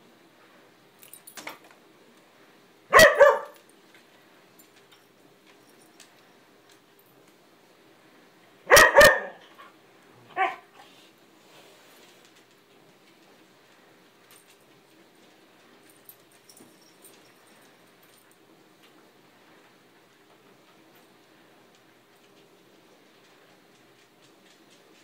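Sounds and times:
dog barking: 2.9s - 3.6s, 8.7s - 9.4s, 10.3s - 10.7s.

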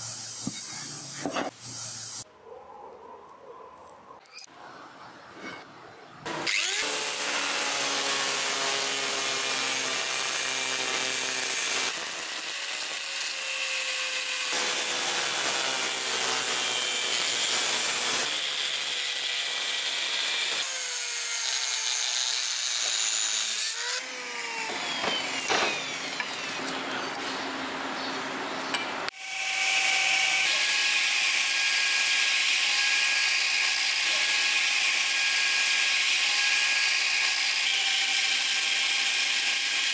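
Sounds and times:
angle grinder cutting metal: 6.3s - 27.2s, 29.1s - 39.9s
belt grinder running: 6.4s - 26.7s, 29.1s - 39.9s.

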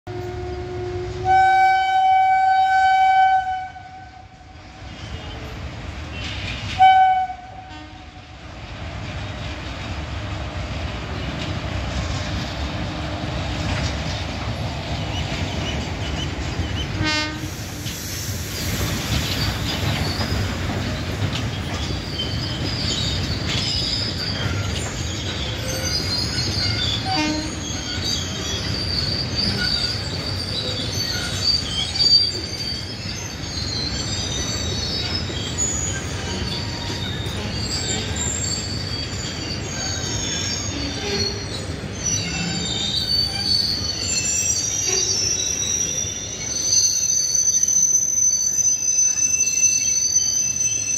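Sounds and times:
train horn blasts: 0.1s - 4.5s, 6.8s - 8.2s, 17.0s - 17.5s, 27.0s - 27.6s
freight train wheels rumbling: 0.1s - 50.9s
high-pitched wheel squeal: 21.7s - 50.9s.

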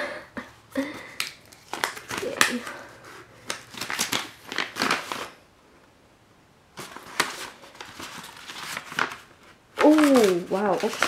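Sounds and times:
paper envelope tearing and rustling: 1.3s - 5.4s, 6.8s - 11.0s.

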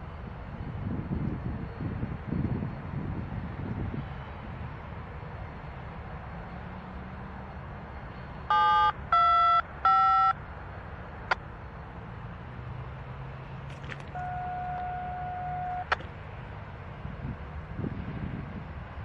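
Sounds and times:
diesel locomotive rumbling: 0.0s - 19.0s
radio scanner beeps: 8.5s - 10.4s, 14.2s - 16.0s.

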